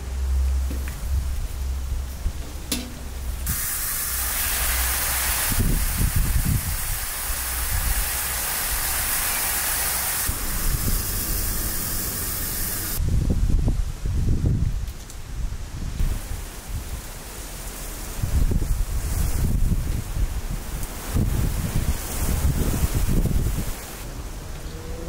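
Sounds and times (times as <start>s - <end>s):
hose nozzle spray hissing: 3.2s - 13.0s.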